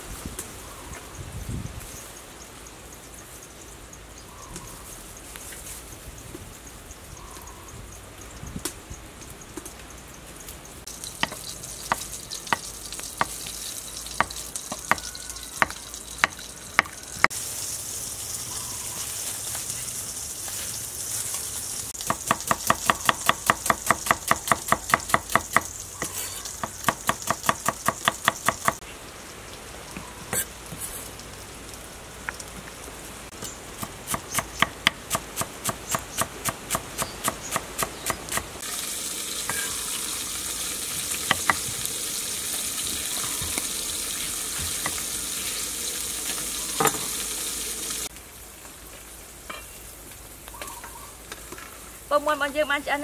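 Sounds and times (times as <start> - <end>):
steady high hiss: 15.9 - 22.7.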